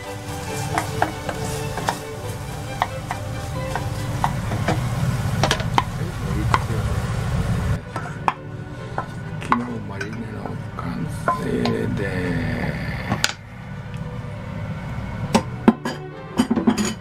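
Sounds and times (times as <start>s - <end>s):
wooden spatula clacking on saucepan: 0.0s - 6.7s
low frying noise: 0.0s - 17.0s.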